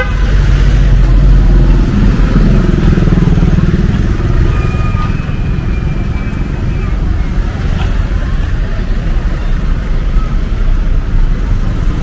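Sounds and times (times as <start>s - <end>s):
street traffic: 0.0s - 12.0s
motorbike engine passing: 0.1s - 8.3s.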